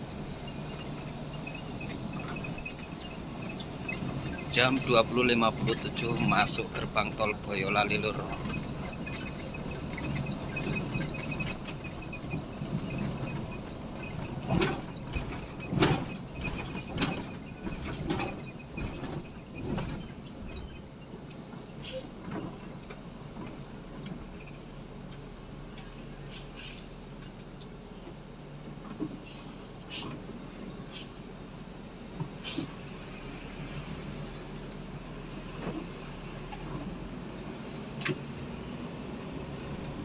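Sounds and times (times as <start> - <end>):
bus engine and road rumble: 0.0 - 40.0
sharp knocks and rattles: 1.4 - 20.8.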